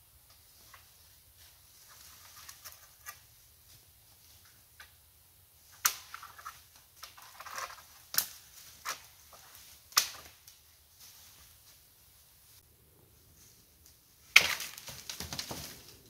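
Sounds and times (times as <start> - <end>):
leaves and twigs crackling: 5.6 - 12.6, 13.2 - 16.0
dry branches snapping: 5.8 - 6.2, 7.0 - 10.6, 14.3 - 15.9.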